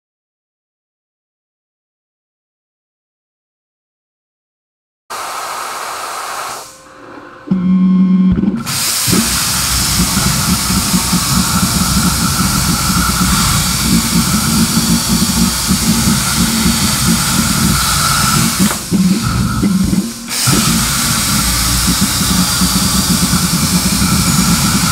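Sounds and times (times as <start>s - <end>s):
plasma torch hissing and crackling: 5.1s - 6.9s, 8.6s - 24.9s
low hum: 6.6s - 24.9s.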